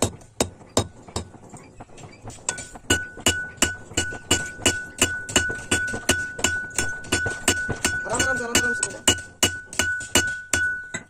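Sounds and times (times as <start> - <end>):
metallic ringing: 2.3 - 11.0
hammer striking metal on anvil: 2.4 - 11.0.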